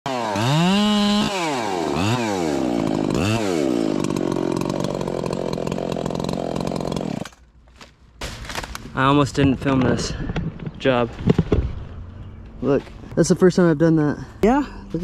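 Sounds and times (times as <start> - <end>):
chainsaw revving and idling: 0.1 - 7.4.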